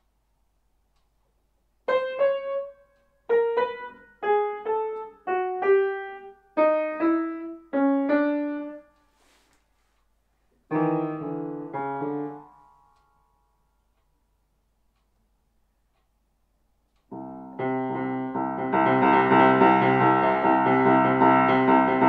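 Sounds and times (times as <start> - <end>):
grand piano melody: 1.8 - 8.9, 10.7 - 13.0, 17.1 - 22.0.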